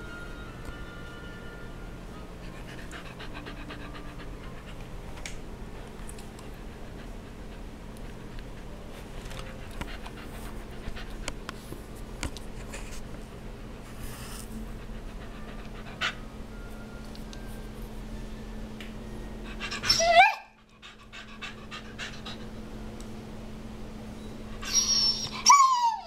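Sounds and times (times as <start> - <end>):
dog panting: 2.4 - 5.1, 6.2 - 11.6, 14.0 - 16.3, 19.4 - 22.6.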